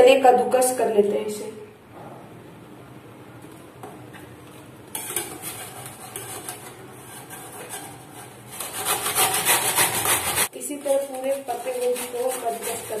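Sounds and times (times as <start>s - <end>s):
cabbage rasping on metal grater: 5.1s - 13.0s.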